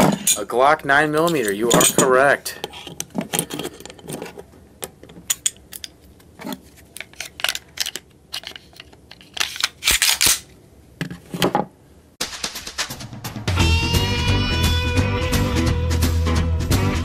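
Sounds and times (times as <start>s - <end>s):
pistol parts clicking and clacking: 1.2s - 6.0s, 6.9s - 10.5s.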